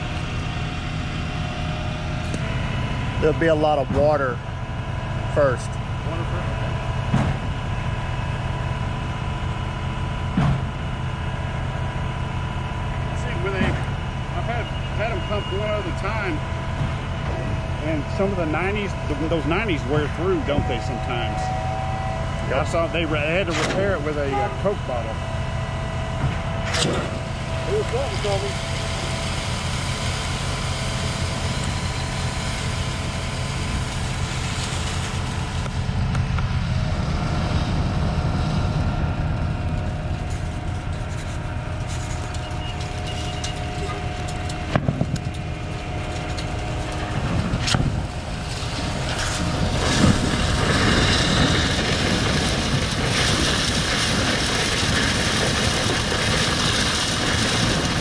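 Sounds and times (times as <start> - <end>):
diesel engine hum: 0.0 - 58.0
hydraulic whine: 0.0 - 58.0
rushing noise: 26.8 - 58.0.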